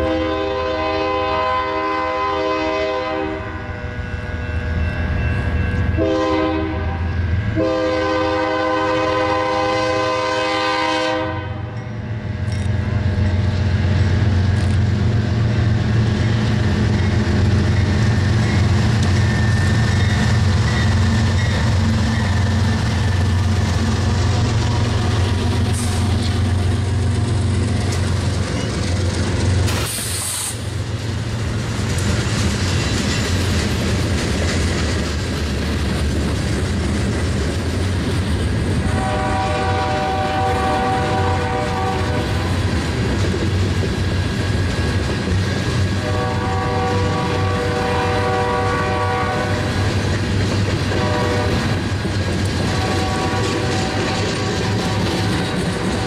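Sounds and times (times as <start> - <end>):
locomotive chord horn: 0.0 - 4.4, 5.9 - 11.8, 38.8 - 42.7, 46.0 - 49.9, 50.9 - 51.8, 52.6 - 56.0.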